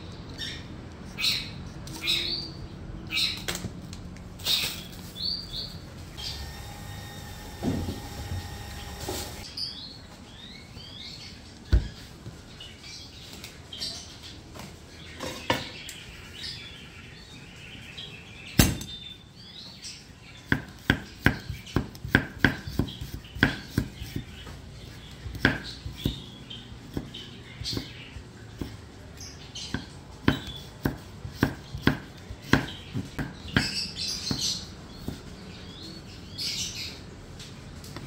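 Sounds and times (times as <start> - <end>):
birds chirping: 0.0 - 3.5, 4.4 - 37.2
cleaver chopping on wooden block: 20.5 - 24.3, 25.3 - 26.2, 29.8 - 35.2.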